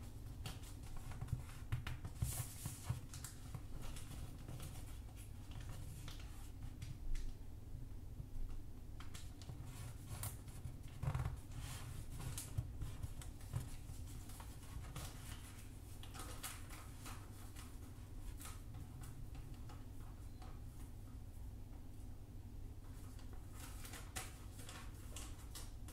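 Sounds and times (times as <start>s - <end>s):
paper rustling and crinkling: 0.2s - 7.3s, 9.0s - 19.8s, 22.8s - 25.9s.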